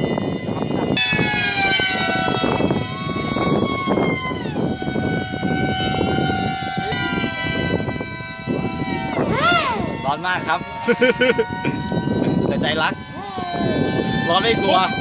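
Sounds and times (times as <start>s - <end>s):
model aircraft motor whining: 0.0s - 8.0s, 11.8s - 15.0s
wind noise on microphone: 0.0s - 15.0s.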